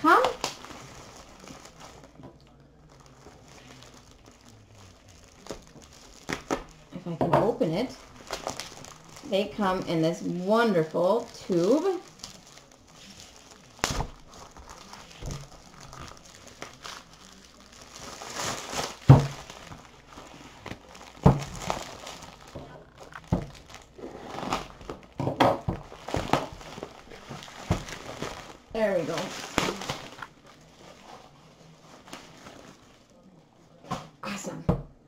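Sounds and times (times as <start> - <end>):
plastic crinkling and rustling: 0.0 - 34.2.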